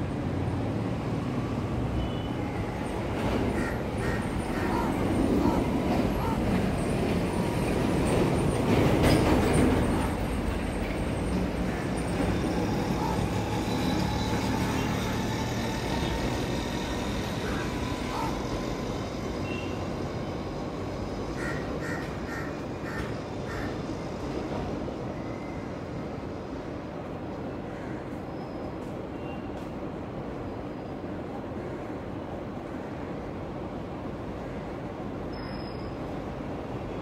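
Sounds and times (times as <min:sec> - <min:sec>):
road traffic rumble: 0:00.0 - 0:25.1.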